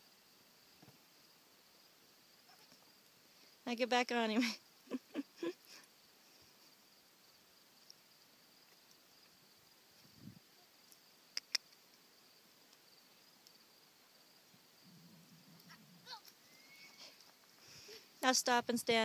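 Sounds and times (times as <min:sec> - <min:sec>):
insects chirring: 0:00.0 - 0:19.0
sharp clicks: 0:10.9 - 0:11.9.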